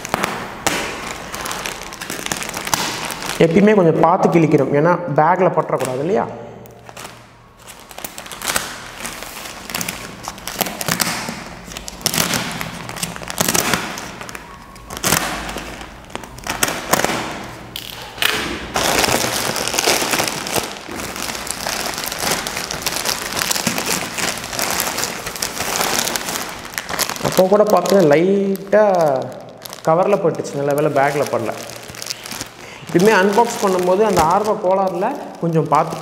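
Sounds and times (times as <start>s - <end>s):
plastic mailer crinkling and tearing: 0.0s - 4.7s, 5.7s - 36.0s.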